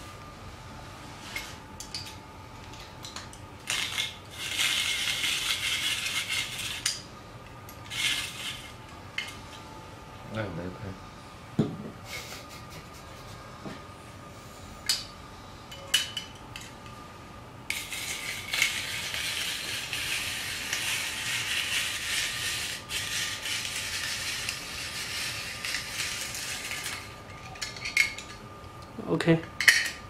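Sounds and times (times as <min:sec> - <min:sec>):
rotary grater rasping scrape: 0:04.3 - 0:06.9, 0:07.9 - 0:08.7, 0:17.7 - 0:27.0.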